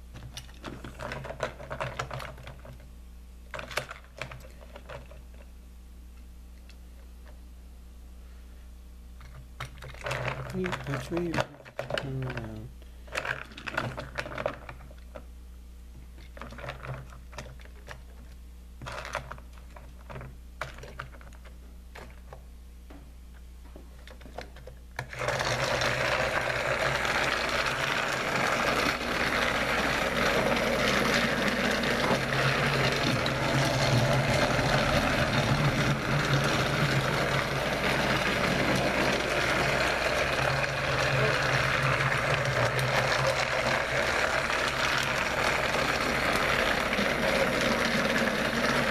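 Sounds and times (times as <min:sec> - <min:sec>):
toy motor whirring: 0:25.1 - 0:48.9.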